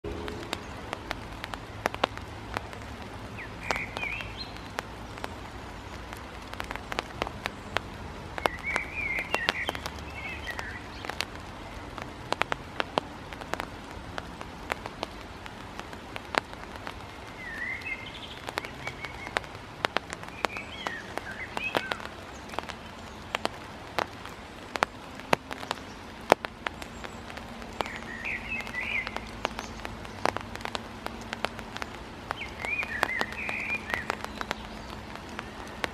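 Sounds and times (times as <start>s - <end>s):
high chirping bird calls: 3.4s - 4.8s, 8.4s - 11.2s, 17.2s - 19.5s, 32.3s - 35.7s.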